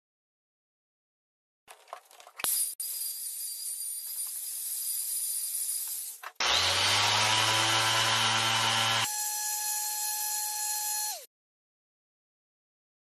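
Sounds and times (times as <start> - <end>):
orbit sander on wood: 6.4 - 11.2
router running on wood: 6.4 - 11.3.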